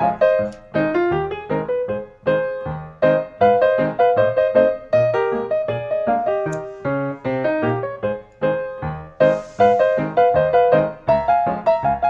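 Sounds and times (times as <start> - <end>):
piano notes: 0.0 - 12.0.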